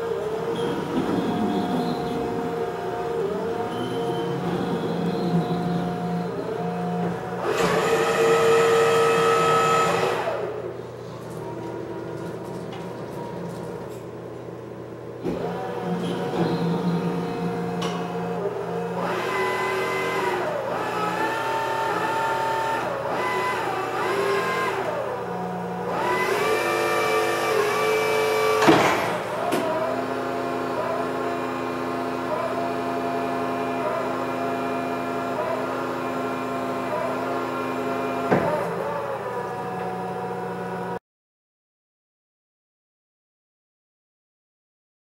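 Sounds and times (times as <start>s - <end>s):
hydraulic pump motor whining: 0.0s - 13.8s, 14.7s - 41.0s
loud clunk: 28.6s - 29.7s, 38.3s - 38.7s.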